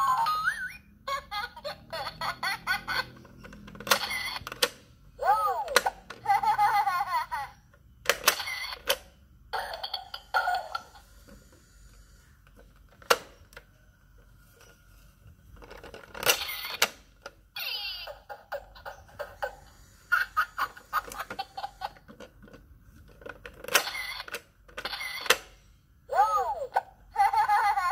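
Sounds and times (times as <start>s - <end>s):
recorded baby giggles: 0.0s - 3.2s, 5.2s - 7.7s, 17.6s - 22.0s, 26.1s - 27.9s
sharp plastic click: 8.0s - 9.1s.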